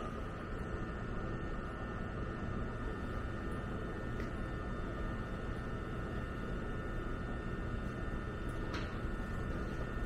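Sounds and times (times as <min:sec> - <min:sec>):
high whine: 0:00.0 - 0:02.0.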